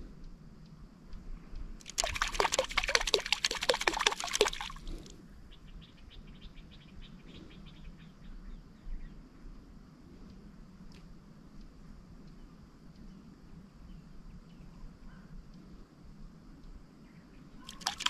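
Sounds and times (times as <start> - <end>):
faint water ticks: 0.1 - 5.6, 8.9 - 18.0
small splashes on water: 1.8 - 5.1, 17.6 - 18.0.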